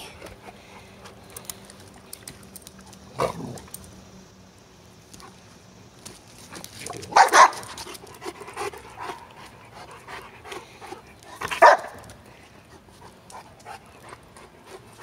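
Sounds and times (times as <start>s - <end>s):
dog barking: 7.1s - 7.7s, 11.6s - 12.0s
dog panting: 7.7s - 15.0s.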